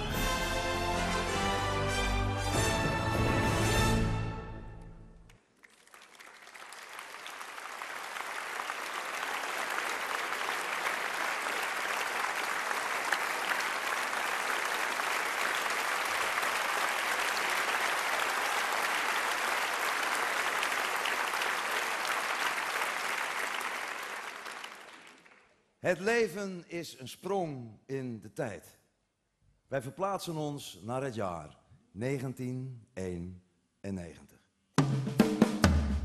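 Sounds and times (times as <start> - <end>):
audience applause: 5.3 - 25.6.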